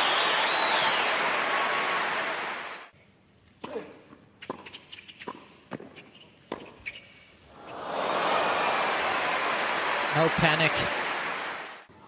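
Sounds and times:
racket striking tennis ball: 4.4s - 6.8s
shoe squeaks: 4.4s - 7.4s
crowd noise: 7.6s - 12.0s.

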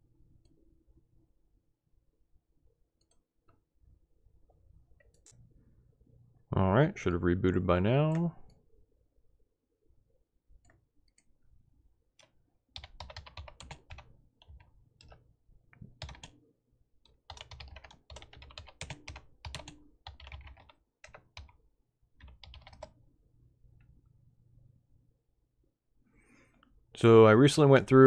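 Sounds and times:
typing on computer keyboard: 12.2s - 15.2s, 15.8s - 16.4s, 17.1s - 21.6s, 22.2s - 23.0s.

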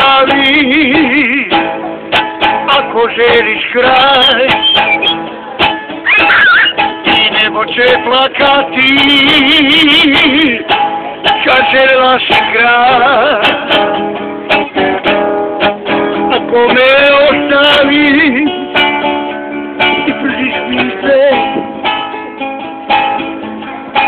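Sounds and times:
man singing: 0.0s - 1.8s, 2.4s - 5.2s, 6.1s - 14.0s, 15.9s - 18.8s, 19.8s - 21.9s
acoustic guitar strumming: 0.0s - 24.0s.

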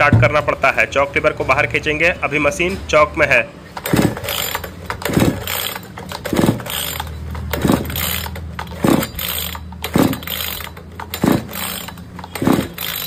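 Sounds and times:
chainsaw pull-starter whirring: 3.7s - 13.0s.

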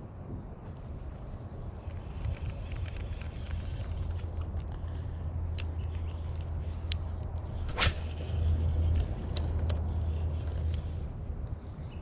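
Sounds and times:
light clicks: 1.8s - 7.5s
fishing rod swishing through air: 7.6s - 8.9s.

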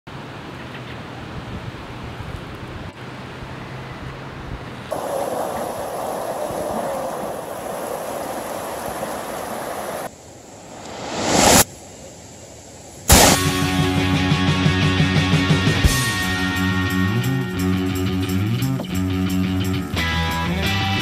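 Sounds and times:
rocky creek running: 4.9s - 10.1s
steady rushing noise: 4.9s - 11.8s, 13.1s - 13.5s.

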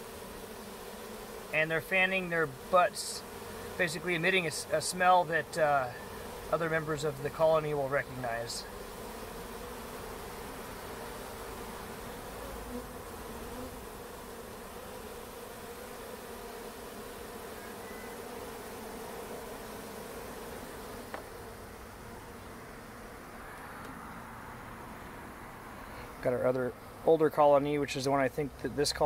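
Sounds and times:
honeybees droning: 0.0s - 29.0s.

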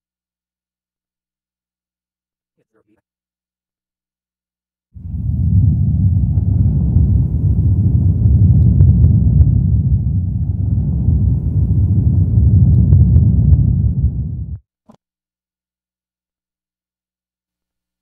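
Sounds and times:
deep steady rumble: 5.0s - 14.6s.

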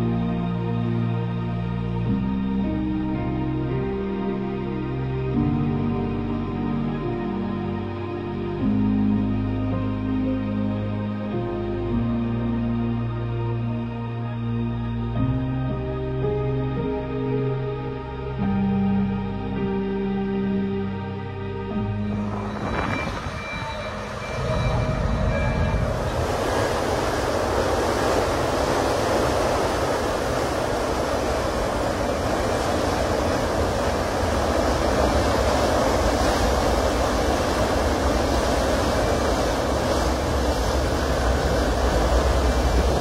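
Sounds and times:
background music: 0.0s - 43.0s
ship engines rumbling: 21.6s - 43.0s
churning water: 22.2s - 43.0s.

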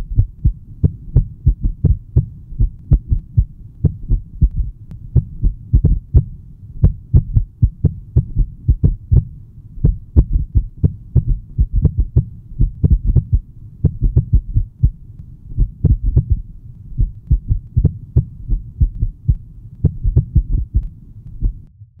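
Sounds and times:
heartbeat thumps: 0.0s - 15.0s, 15.6s - 21.7s.

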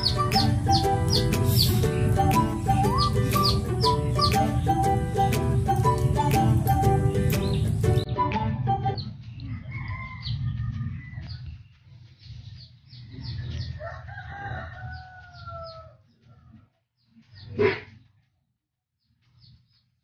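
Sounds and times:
rooster crowing: 9.5s - 11.4s, 13.5s - 16.0s.

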